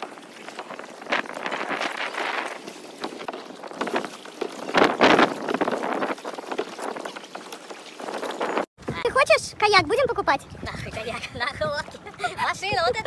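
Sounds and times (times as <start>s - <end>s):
water splashing around kayak: 0.0s - 8.7s
wind on microphone: 0.0s - 13.0s.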